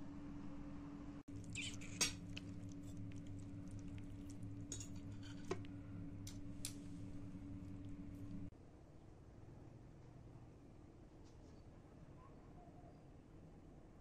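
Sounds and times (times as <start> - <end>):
steady low hum: 0.0 - 8.5
fork clinking on plate: 4.6 - 5.6.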